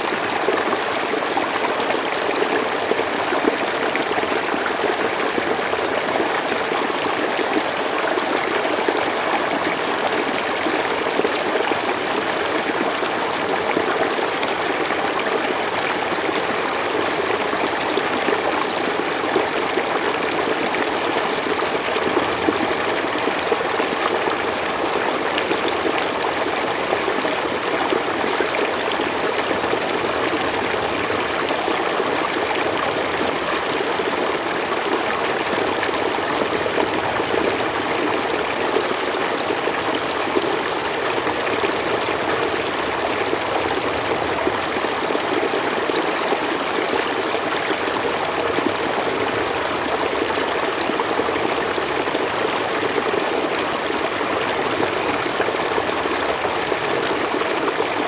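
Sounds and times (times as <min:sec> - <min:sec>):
running water: 0:00.0 - 0:58.0.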